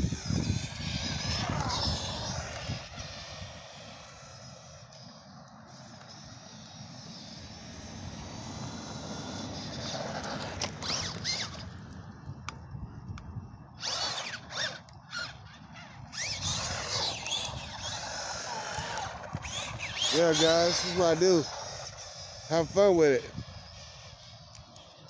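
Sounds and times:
steady rushing noise: 0.0 - 11.9
electric motor whining in bursts: 0.0 - 12.0, 13.7 - 25.0.

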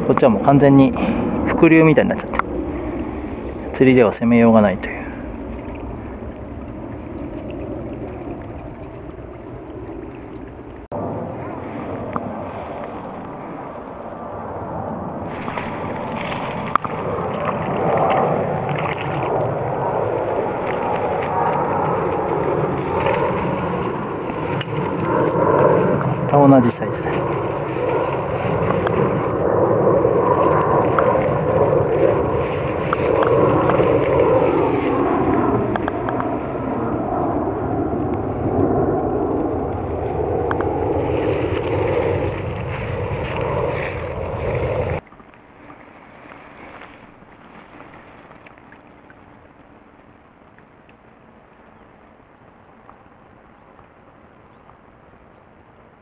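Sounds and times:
stream background: 0.0 - 56.0
rustling against microphone: 15.3 - 36.4, 40.1 - 49.2
stream water rushing over riffle: 15.3 - 36.6.

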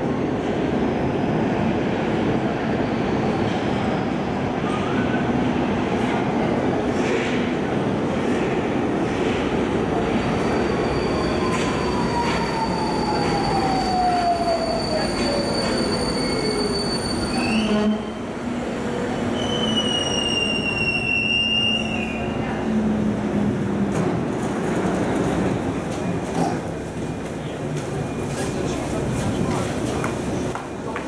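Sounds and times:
train rolling rumble: 0.0 - 31.0
brake squeal: 14.6 - 17.8.

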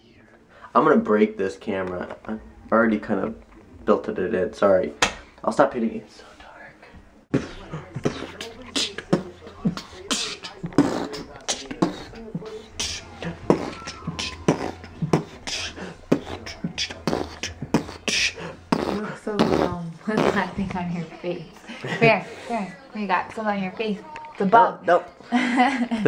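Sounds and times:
steady low hum: 6.0 - 23.0
man beatboxing: 7.3 - 20.6.

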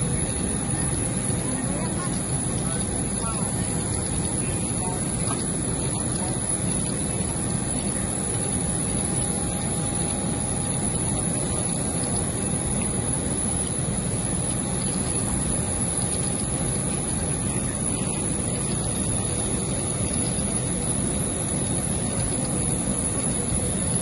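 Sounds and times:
jet turbine roar: 0.0 - 24.0.

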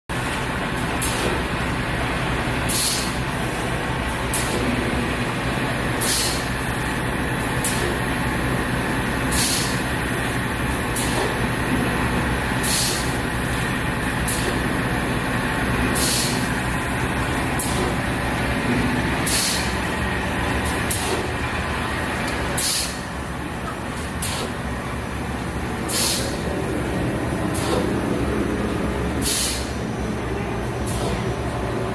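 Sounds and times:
machinery drone: 0.1 - 31.9
short hisses: 25.9 - 26.4, 29.2 - 29.8.

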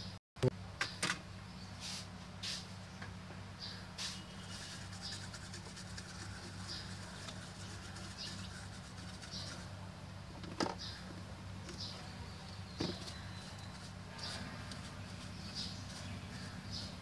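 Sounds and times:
steady low hum: 0.0 - 17.0
brush sweeping scratchy strokes: 1.8 - 2.8, 4.0 - 9.8, 13.0 - 17.0.

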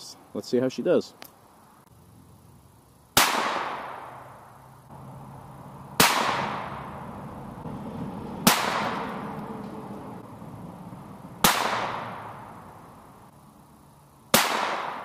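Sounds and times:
pistol shots echoing: 3.2 - 4.2, 6.0 - 7.0, 8.4 - 9.2, 11.4 - 12.5, 14.3 - 15.0.

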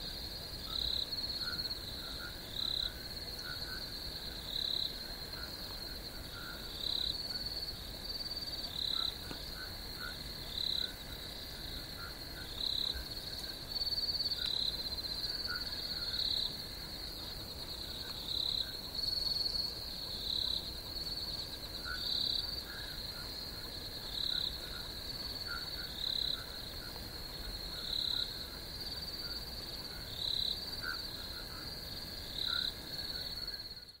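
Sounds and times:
cricket trill: 0.0 - 34.0
loud short cricket calls: 0.0 - 34.0.

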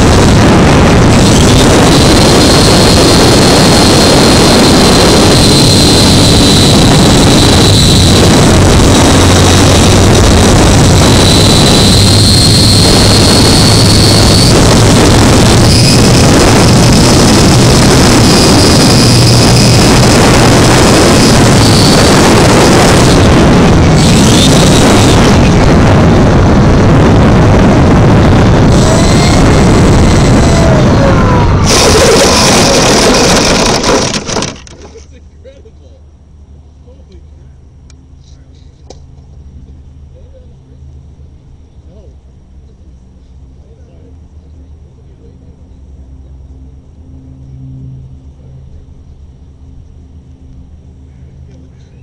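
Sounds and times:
wind noise on microphone: 0.0 - 35.2
high motor whine: 0.0 - 52.0.

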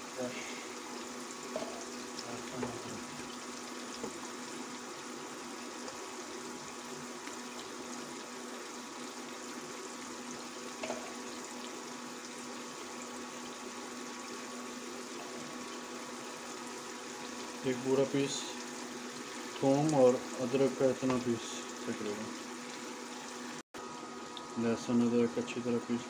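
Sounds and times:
onions sizzling in hot oil: 0.0 - 24.6
cooktop humming: 0.0 - 26.0
oil popping: 1.4 - 5.1.

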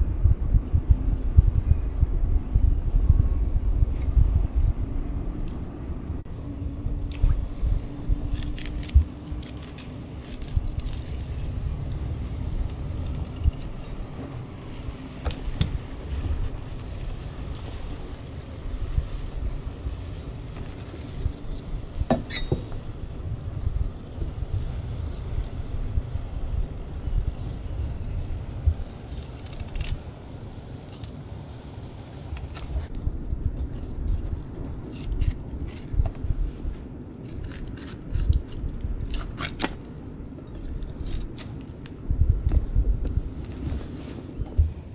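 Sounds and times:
low steady rumble: 0.0 - 44.9
knife cutting and scraping fish: 6.5 - 14.2, 15.3 - 22.8, 29.0 - 30.1, 30.7 - 42.6.

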